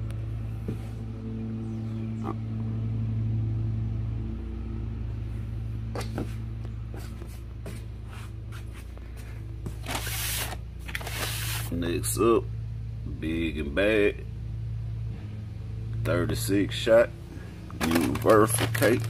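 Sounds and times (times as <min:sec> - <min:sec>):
low mechanical hum: 0:00.0 - 0:19.0
packaging rustling: 0:09.8 - 0:11.7, 0:17.8 - 0:19.0.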